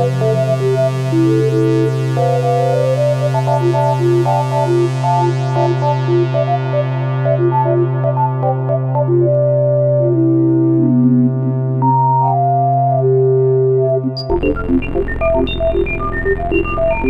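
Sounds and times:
low synthesizer drone: 0.0s - 17.0s
short synth notes melody: 14.0s - 17.0s.

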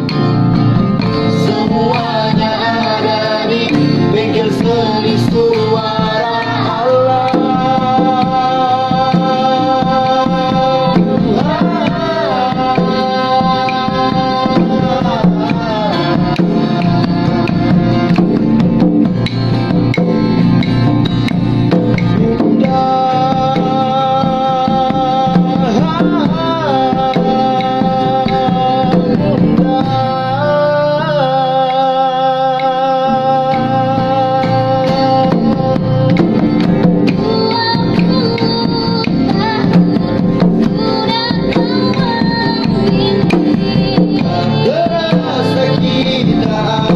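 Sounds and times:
acoustic guitars: 0.0s - 46.9s
hand drum beat: 0.0s - 46.9s.

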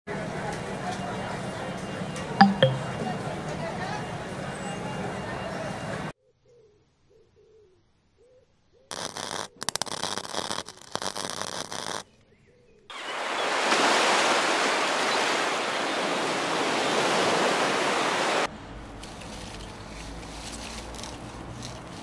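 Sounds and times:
electrical crackle and buzz: 8.9s - 12.0s
sharp electrical clicks: 8.9s - 12.0s
ocean surf washing: 12.9s - 18.5s.

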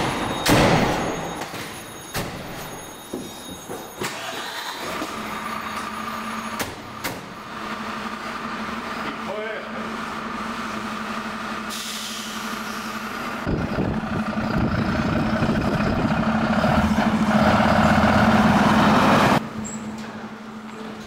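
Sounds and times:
truck diesel engine running: 4.2s - 21.0s.

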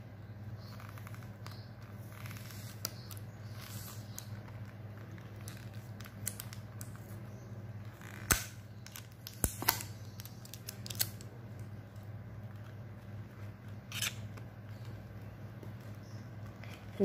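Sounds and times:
low steady hum: 0.0s - 17.0s
cardboard and tape snapping: 5.4s - 6.9s, 8.0s - 11.7s.

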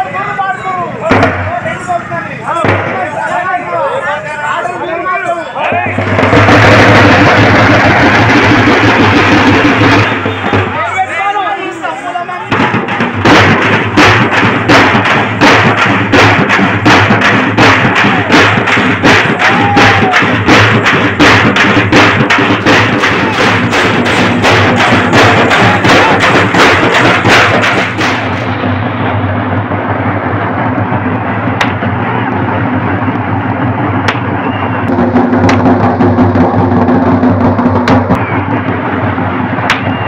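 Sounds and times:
dull steady din: 0.0s - 40.0s
loud drumming: 0.0s - 40.0s.

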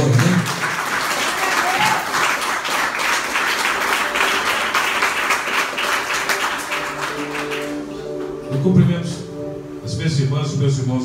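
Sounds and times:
people clapping: 0.0s - 8.3s.

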